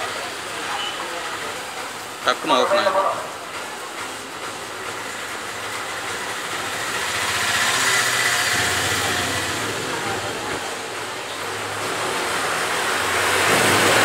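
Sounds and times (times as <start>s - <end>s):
vehicle passing: 6.2s - 14.0s.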